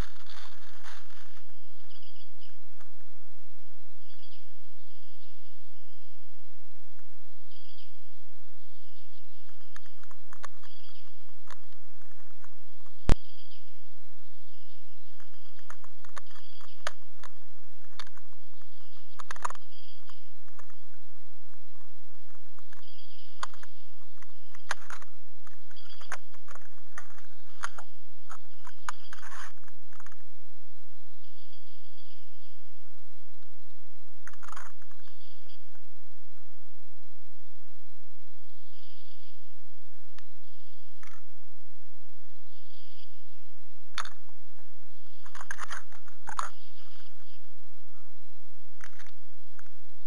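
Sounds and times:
steady low hum: 0.0 - 50.0
small clicks: 9.4 - 13.3, 15.2 - 20.9, 21.5 - 30.2, 34.2 - 35.8, 43.9 - 44.4, 45.1 - 47.4, 48.8 - 49.8.

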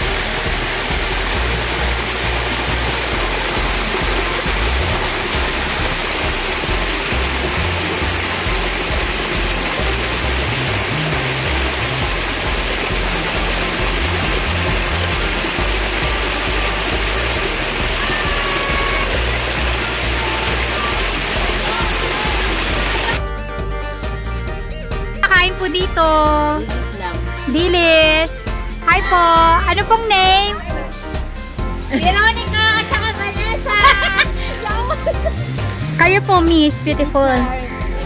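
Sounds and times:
waterfall rushing: 0.0 - 23.2, 32.4 - 38.0
background music: 0.0 - 38.0.

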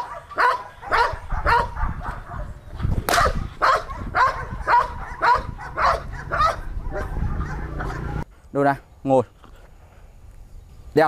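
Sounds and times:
dog barking aggressively: 0.0 - 8.2.

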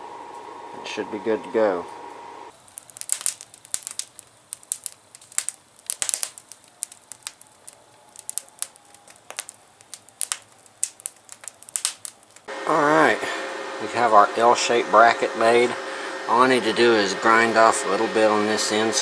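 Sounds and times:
wood fire crackling and popping: 2.5 - 12.5.

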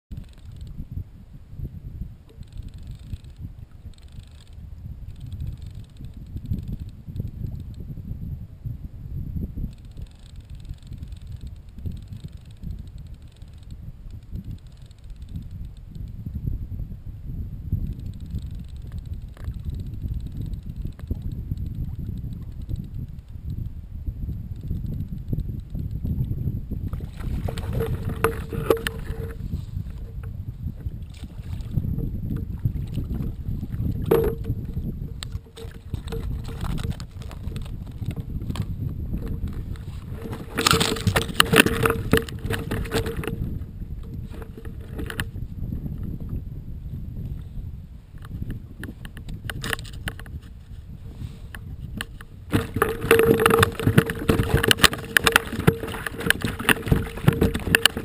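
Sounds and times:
wind rumble on microphone: 0.0 - 58.0
water lapping around kayak: 26.2 - 45.4, 48.0 - 58.0.

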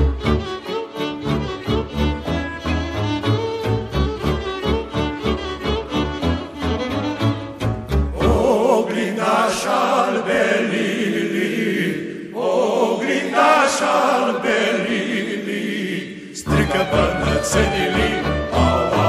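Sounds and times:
folk band playing: 0.0 - 8.5, 16.5 - 19.0.

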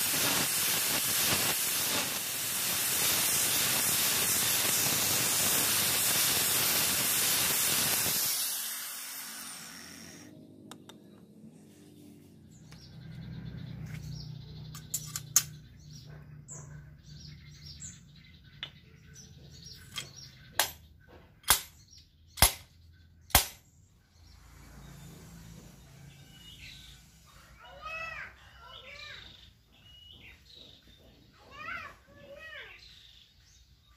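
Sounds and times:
angle grinder sanding steel: 0.0 - 10.3.

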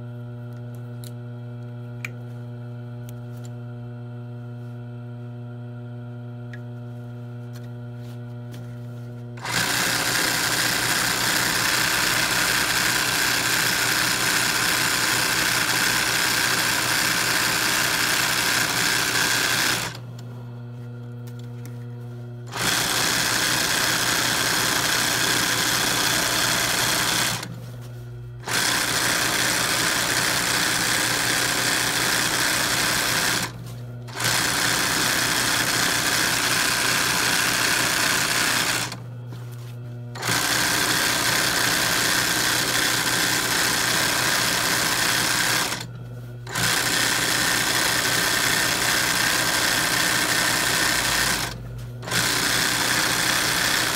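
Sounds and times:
sewing machine stitching fast: 9.4 - 20.0, 22.5 - 27.5, 28.4 - 39.0, 40.2 - 45.9, 46.5 - 53.9
steady electric hum: 20.0 - 22.5, 27.5 - 28.4, 39.0 - 40.2.

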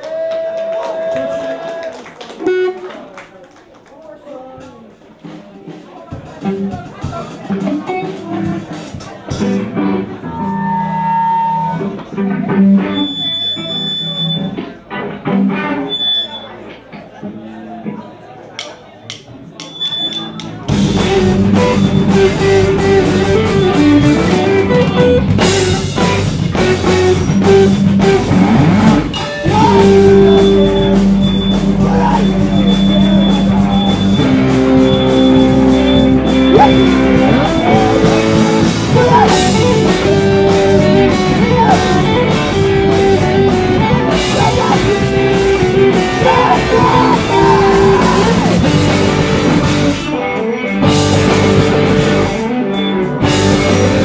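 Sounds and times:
drum kit: 4.6 - 13.2, 18.6 - 54.0
electric guitars: 6.4 - 16.2, 20.0 - 54.0
person singing: 29.3 - 31.1, 36.4 - 48.6.

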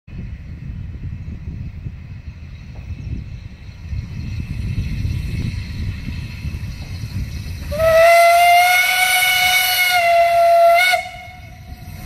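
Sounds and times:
steam whistle blast: 7.7 - 11.9.

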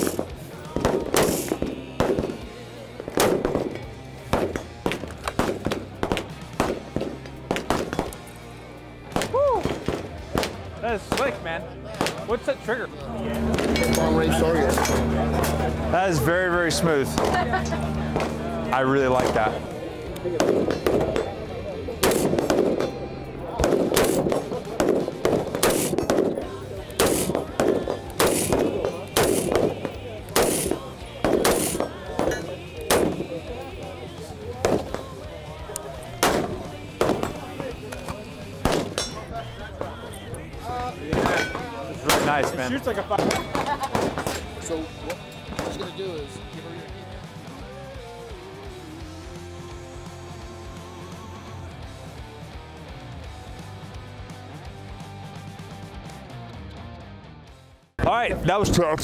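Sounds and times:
rifle gunshots: 0.0 - 8.2, 20.4 - 23.0, 23.6 - 33.5, 34.6 - 35.3, 36.1 - 39.2, 41.1 - 44.6, 45.5 - 45.9
background music: 0.0 - 59.0.

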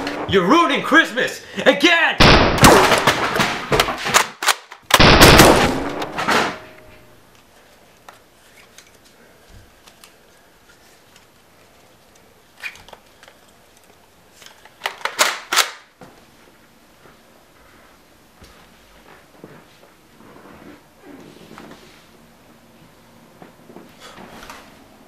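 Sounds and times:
loud gunshot-like bang: 2.2 - 3.7, 5.0 - 6.7
burst of sharp cracks: 2.2 - 6.9
plastic blaster clicks and rattles: 3.8 - 4.9, 12.1 - 15.9.

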